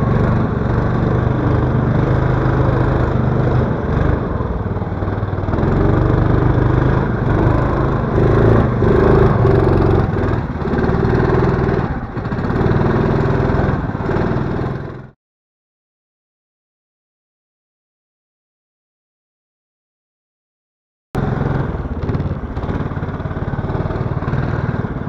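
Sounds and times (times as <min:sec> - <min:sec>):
sled ploughing through snow: 0:00.0 - 0:15.1, 0:21.2 - 0:25.0
snowmobile engine running under load: 0:00.0 - 0:15.2, 0:21.2 - 0:25.0.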